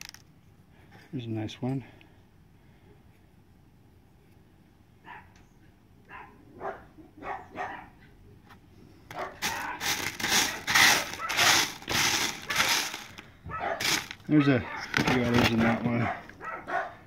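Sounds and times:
stones clicking: 0.0s - 0.3s
gravel rattling on sifting screen: 9.4s - 13.2s, 13.8s - 14.3s.

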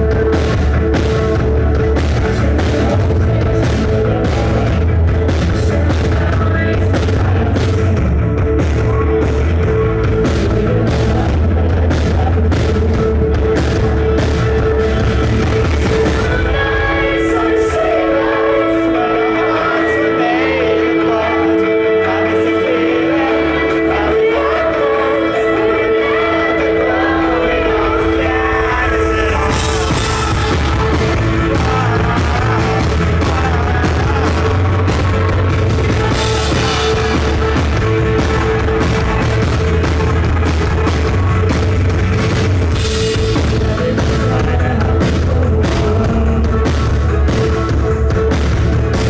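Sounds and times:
live rock band playing: 0.0s - 49.0s
woman singing: 2.0s - 8.2s, 10.1s - 13.9s, 15.3s - 39.2s, 43.1s - 47.3s.

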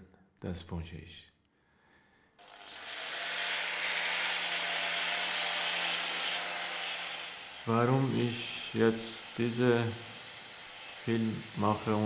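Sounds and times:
power tool grinding steel: 2.4s - 12.0s.

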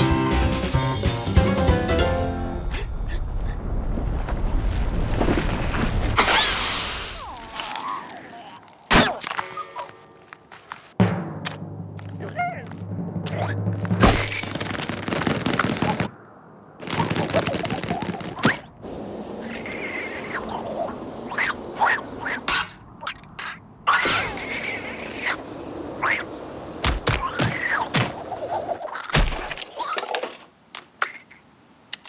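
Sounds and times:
strong wind gusting: 15.8s - 23.0s, 23.7s - 28.8s.

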